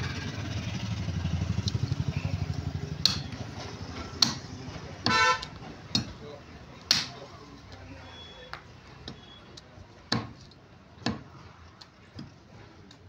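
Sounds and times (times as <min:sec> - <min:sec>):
pulsing engine rumble: 0:00.0 - 0:06.6
cleaver chopping meat on wood: 0:03.0 - 0:03.4, 0:04.2 - 0:06.2, 0:06.9 - 0:07.2, 0:10.1 - 0:10.4, 0:11.0 - 0:11.3.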